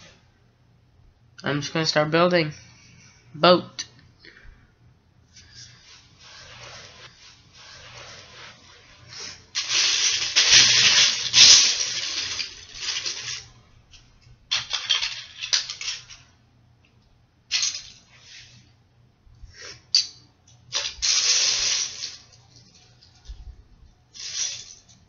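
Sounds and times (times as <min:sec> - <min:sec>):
plastic bricks clattering: 0:09.6 - 0:13.5, 0:14.5 - 0:16.2.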